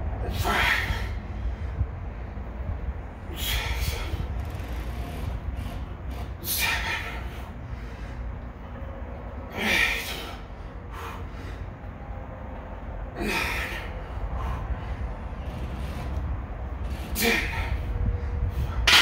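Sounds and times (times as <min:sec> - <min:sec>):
steady low hum: 0:00.0 - 0:19.0
man exhaling forcefully: 0:00.2 - 0:01.2, 0:03.3 - 0:04.2, 0:06.4 - 0:08.0, 0:13.2 - 0:14.6.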